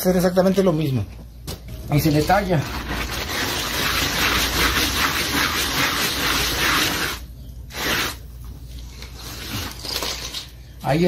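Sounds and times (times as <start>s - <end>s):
block rasping over wet cement: 2.1s - 8.3s.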